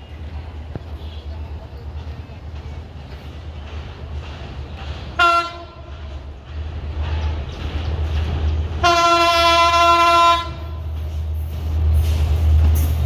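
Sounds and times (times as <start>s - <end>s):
train horn blasts: 5.2s - 5.9s, 8.8s - 11.0s.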